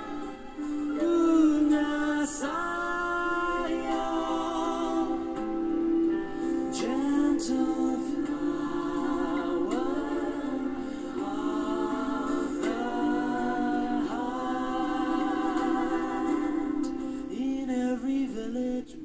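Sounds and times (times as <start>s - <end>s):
group singing in harmony: 0.0s - 17.8s
man singing into microphone: 0.9s - 5.4s, 6.8s - 8.3s, 17.3s - 19.0s.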